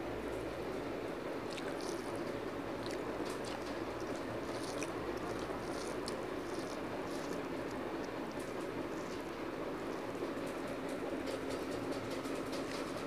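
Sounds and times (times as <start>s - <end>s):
fingers squishing wet food: 1.4s - 13.0s.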